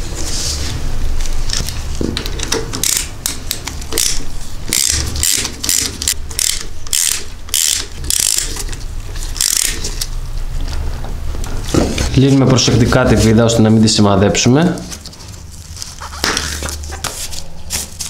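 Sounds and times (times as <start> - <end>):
socket ratchet clicking: 2.4 - 8.6, 9.4 - 10.1.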